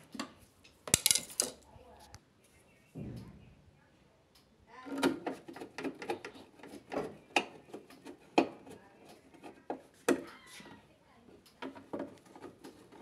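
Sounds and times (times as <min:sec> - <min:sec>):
plastic and metal parts clicking: 0:00.9 - 0:01.6.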